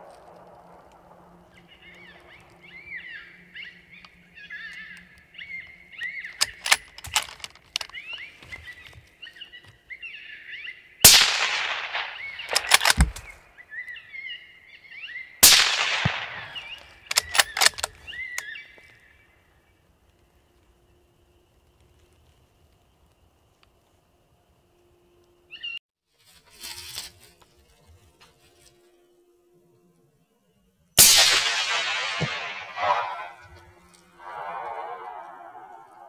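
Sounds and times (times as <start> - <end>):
sharp rifle bolt clicks: 6.4 - 8.0, 11.2 - 13.4, 15.4 - 18.5
rifle shots: 11.0 - 13.4, 15.4 - 18.0, 31.0 - 33.6
electronic coyote pup distress yelps: 32.8 - 36.0.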